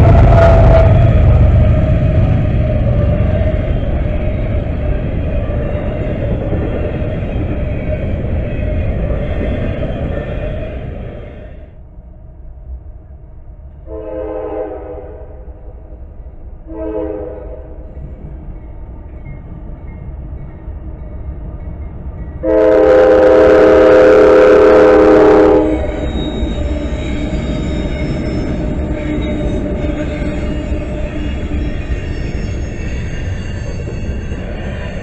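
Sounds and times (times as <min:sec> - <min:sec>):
locomotive air horn blasts: 0:00.0 - 0:01.0, 0:13.8 - 0:15.6, 0:16.7 - 0:17.8, 0:22.4 - 0:25.9
diesel locomotives rumbling past: 0:00.0 - 0:35.0.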